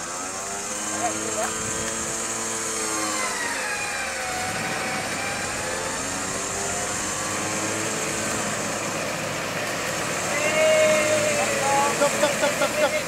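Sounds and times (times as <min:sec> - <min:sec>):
engine revving: 0:00.0 - 0:13.0.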